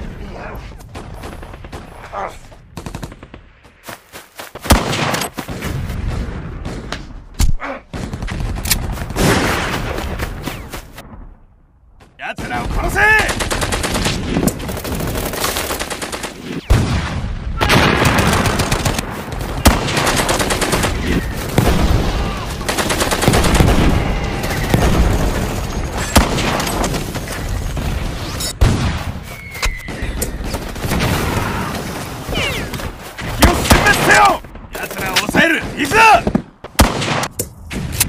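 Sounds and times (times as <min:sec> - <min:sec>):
rifle and machine-gun fire: 0:02.7 - 0:03.5, 0:04.6 - 0:06.9, 0:07.9 - 0:10.2, 0:12.4 - 0:29.2, 0:30.4 - 0:32.3, 0:33.3 - 0:37.3.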